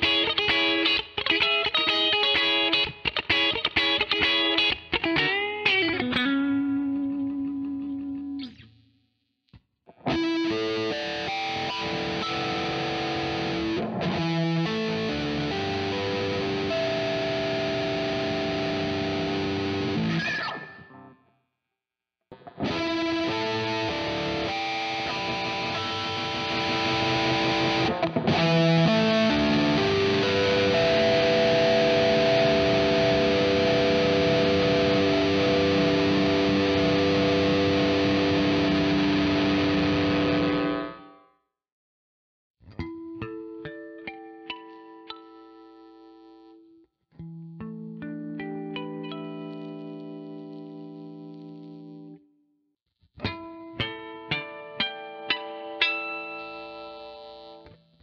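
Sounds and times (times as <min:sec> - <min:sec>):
distorted electric guitar harmonics: 0:00.0 - 0:08.7, 0:09.9 - 0:21.1, 0:22.4 - 0:41.2.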